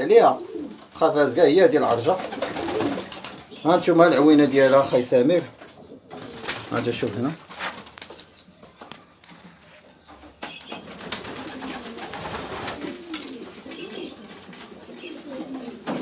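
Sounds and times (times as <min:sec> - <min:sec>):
pigeons cooing: 0:00.0 - 0:04.0, 0:10.6 - 0:16.0.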